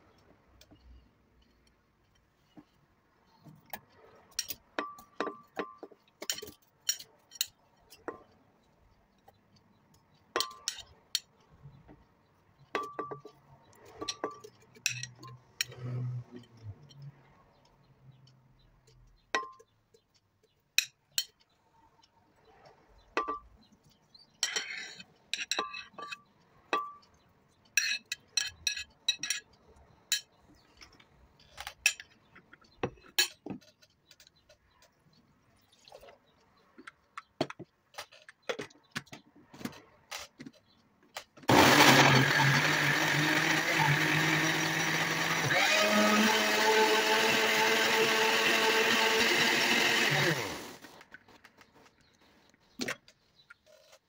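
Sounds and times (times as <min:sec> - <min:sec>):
blender motor running: 0:41.5 - 0:51.0.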